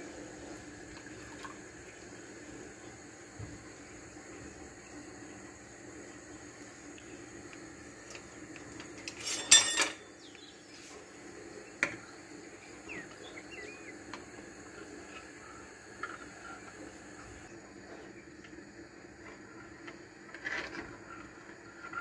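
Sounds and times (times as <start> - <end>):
low kitchen hum: 0.0 - 22.0
utensils clattering against dishes: 9.0 - 10.2.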